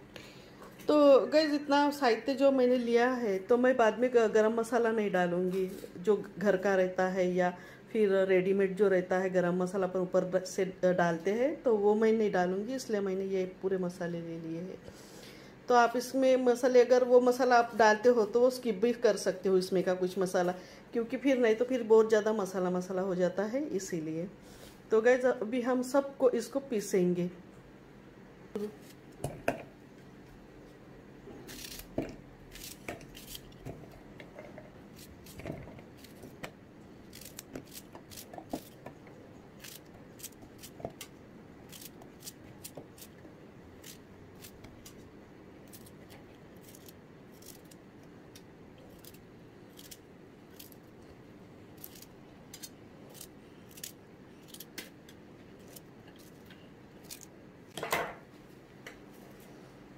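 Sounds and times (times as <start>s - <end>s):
knife cutting vegetables: 31.4s - 34.0s, 34.9s - 36.5s, 37.1s - 43.2s, 45.6s - 47.8s, 48.8s - 50.8s, 51.8s - 55.0s, 55.6s - 57.3s.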